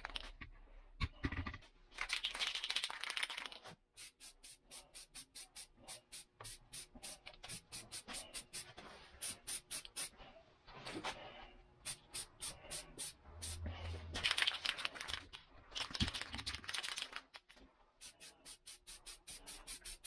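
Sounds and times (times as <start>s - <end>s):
spray paint can rattling: 2.0s - 5.7s, 14.2s - 20.0s.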